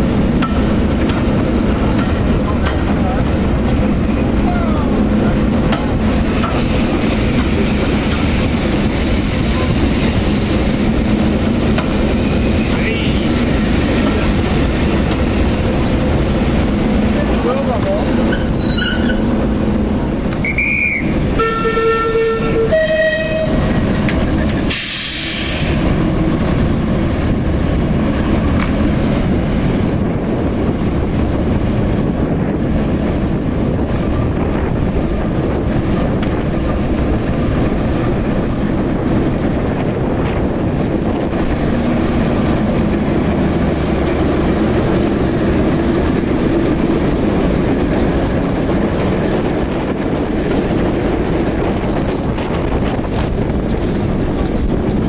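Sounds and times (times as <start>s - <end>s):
whistle: 20.4s - 21.1s
diesel locomotive horn: 20.4s - 23.8s
loud hiss of air: 24.7s - 25.8s.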